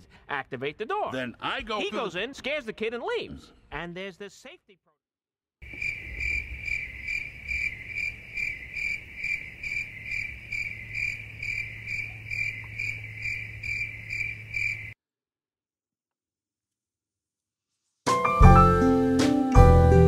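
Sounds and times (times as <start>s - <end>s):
cricket chirping: 5.6s - 15.0s.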